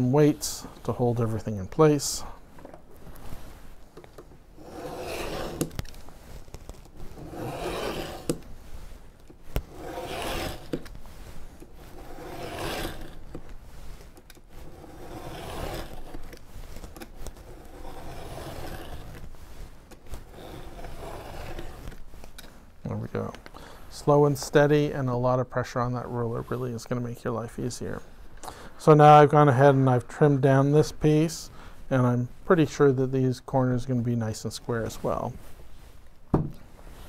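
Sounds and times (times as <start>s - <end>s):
utility knife scraping through board: 4.5s - 22.1s.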